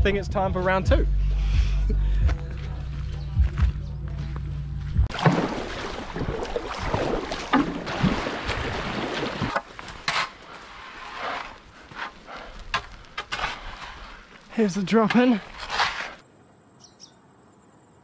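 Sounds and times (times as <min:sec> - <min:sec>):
footsteps on gravel: 0:02.2 - 0:16.2
paddle strokes splashing: 0:05.1 - 0:16.2.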